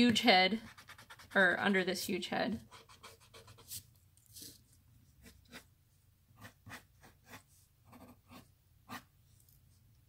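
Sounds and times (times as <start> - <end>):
pencil scratching on paper: 0.5 - 1.6, 2.6 - 5.7, 6.4 - 9.1.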